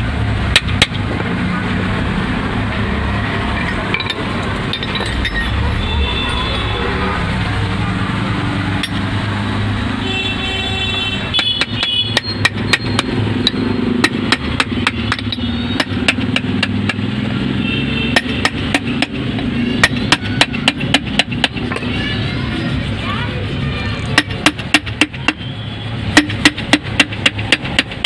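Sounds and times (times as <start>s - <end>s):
hammer tapping on metal: 0.5s - 1.0s, 8.8s - 9.1s, 11.4s - 17.2s, 18.1s - 21.9s, 24.1s - 25.5s, 26.1s - 28.0s.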